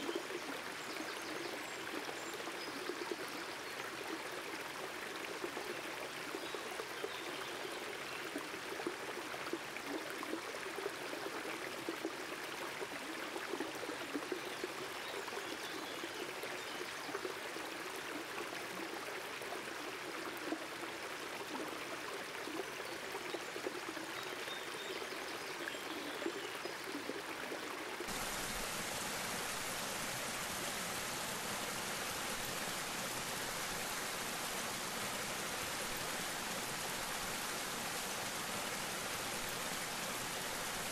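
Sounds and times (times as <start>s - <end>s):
creek babbling over rocks: 0.0s - 40.9s
water rushing: 28.0s - 40.9s.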